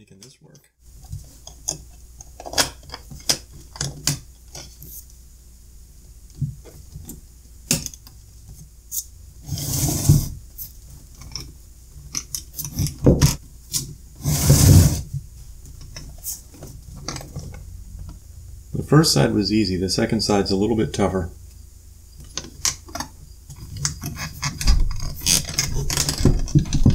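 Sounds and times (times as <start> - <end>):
plastic cases scraping and knocking: 14.2 - 15.2.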